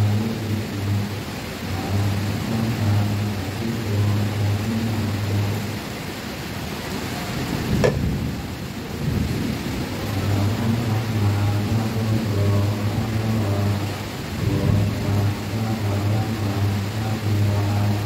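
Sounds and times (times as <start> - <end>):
voices chanting on low pitch: 0.0 - 6.3, 7.1 - 18.0
rain hissing: 0.0 - 18.0
sharp knock: 7.8 - 8.1.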